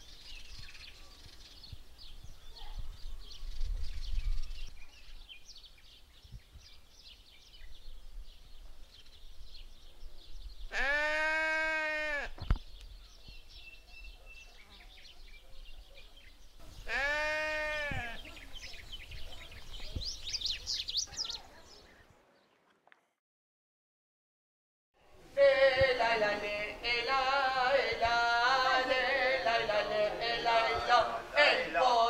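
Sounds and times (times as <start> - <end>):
small birds chirping: 0.0 - 22.8
sheep bleating: 10.7 - 12.4, 16.9 - 18.2.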